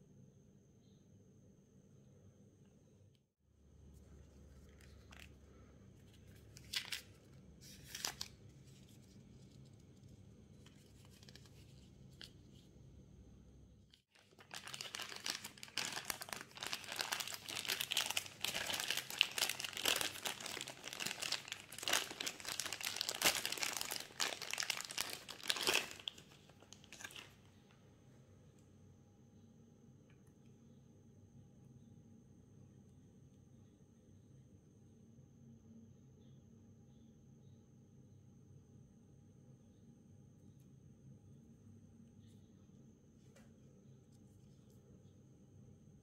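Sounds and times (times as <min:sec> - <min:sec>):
packaging crinkling: 0:04.4 - 0:12.6, 0:14.2 - 0:27.5
packaging rustles and taps: 0:14.2 - 0:27.3.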